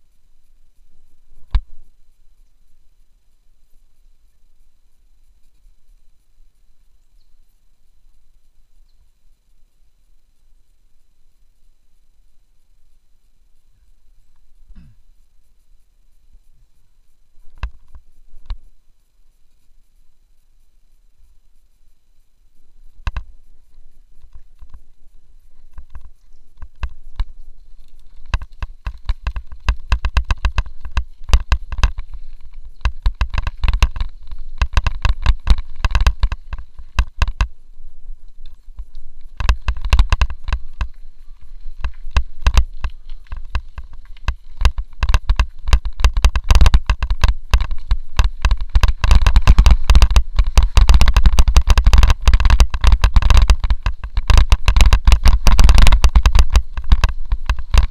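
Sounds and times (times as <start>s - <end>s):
wind rumble on microphone: 22.5s - 57.9s
bike tyres crunching on gravel: 22.8s - 57.9s
bike rattling over bumps: 22.9s - 57.9s.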